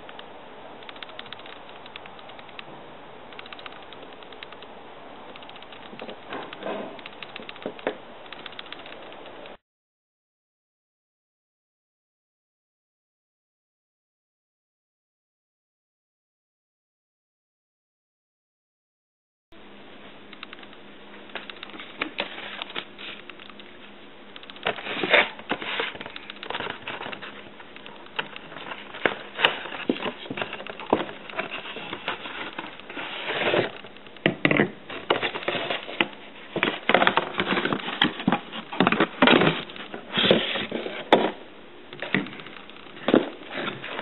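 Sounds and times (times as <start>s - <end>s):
cardboard box rustling: 24.6s - 27.5s, 34.9s - 41.4s.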